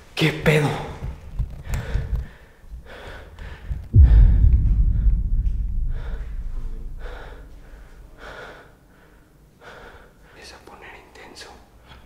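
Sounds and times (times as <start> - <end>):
person breathing heavily: 1.6 - 10.4
low boom: 3.7 - 8.2.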